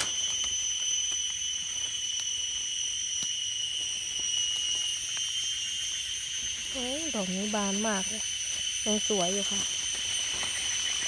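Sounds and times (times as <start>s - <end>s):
insects droning: 0.0s - 11.0s
faint clicks in leaf litter: 9.8s - 11.0s.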